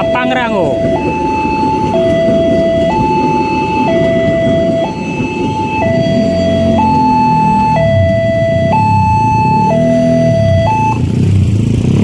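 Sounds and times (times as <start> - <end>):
train wheels rumbling on rails: 0.0 - 9.6
low hum: 0.0 - 11.0
two-tone crossing alarm: 0.0 - 11.0.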